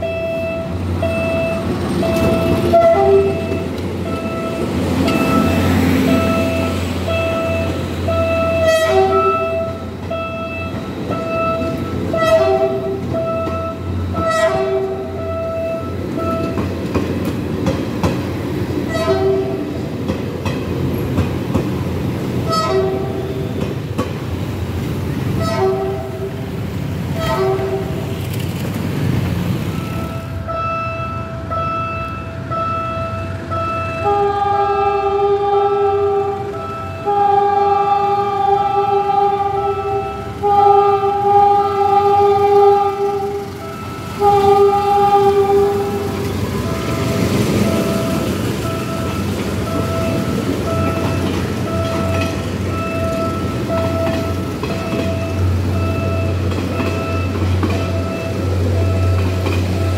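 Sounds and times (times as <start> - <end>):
locomotive horn blasts: 0.0 - 16.6, 18.9 - 19.7, 22.4 - 23.6, 25.4 - 26.4, 27.1 - 28.2, 29.8 - 59.9
train wheels clacking over rail joints: 1.0 - 30.2, 45.7 - 59.9.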